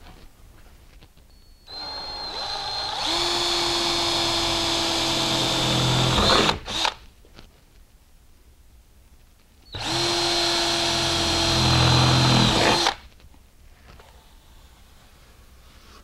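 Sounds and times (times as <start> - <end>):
power drill boring through steel: 1.7 - 7.0, 9.8 - 13.0.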